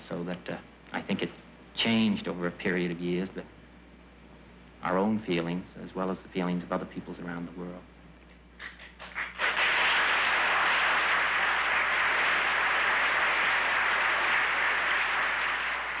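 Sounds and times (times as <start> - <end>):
audience applauding: 8.6 - 16.0.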